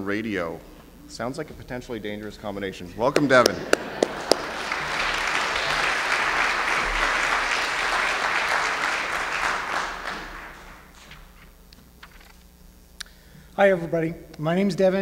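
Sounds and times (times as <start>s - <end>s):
audience applauding: 3.2s - 11.4s.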